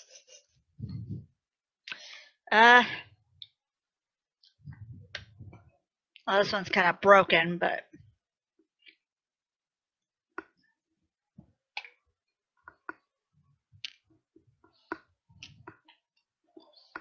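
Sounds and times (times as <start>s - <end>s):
soft chewing: 11.7s - 17.0s.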